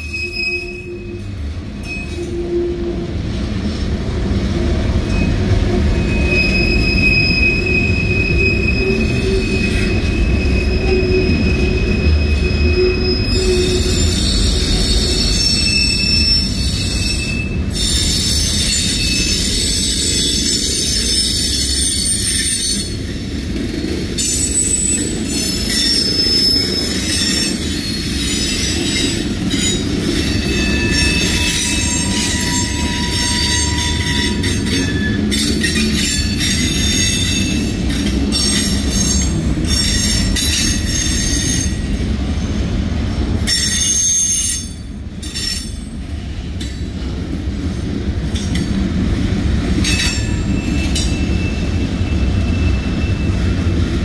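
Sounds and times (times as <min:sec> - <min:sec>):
high-pitched wheel squeal: 0:00.0 - 0:02.9, 0:05.1 - 0:23.0, 0:24.2 - 0:37.7
train wheels rumbling on rails: 0:00.0 - 0:54.0.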